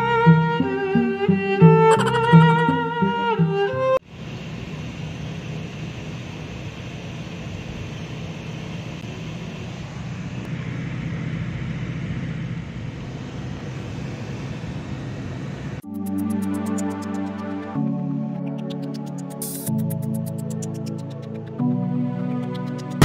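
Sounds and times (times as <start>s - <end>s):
background music: 0.0s - 4.0s, 15.8s - 23.0s
van road and engine noise: 4.0s - 15.8s.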